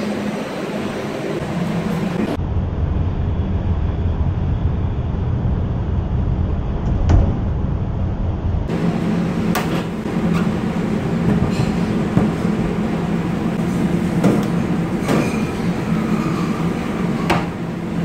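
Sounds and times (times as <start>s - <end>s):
kitchen background rumble: 4.1s - 18.0s.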